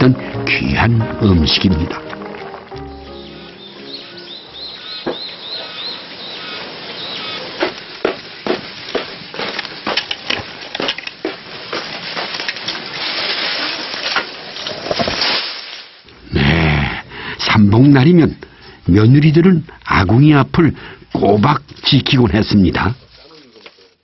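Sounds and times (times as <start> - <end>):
twigs rustling: 1.3 - 16.2, 21.3 - 24.0
dry branches snapping: 1.8 - 3.0, 7.6 - 16.0, 22.7 - 24.0
bird chirping: 2.5 - 7.6.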